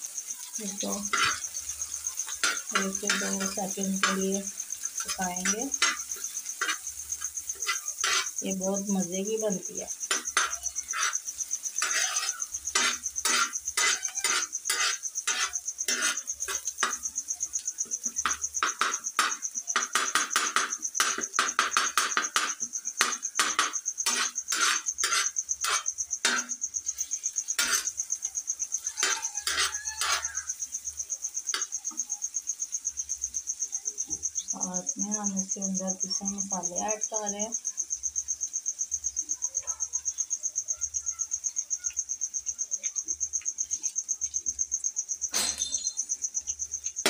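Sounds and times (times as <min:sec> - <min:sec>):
steel spatula scraping a griddle: 0:00.7 - 0:08.8, 0:09.8 - 0:17.0, 0:18.0 - 0:30.6, 0:45.3 - 0:46.1.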